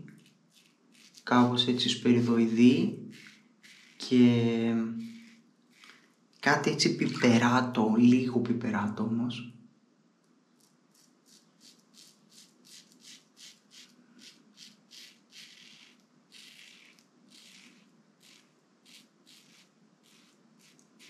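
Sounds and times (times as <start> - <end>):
razor scraping stubble: 0.0 - 6.1, 10.6 - 21.0.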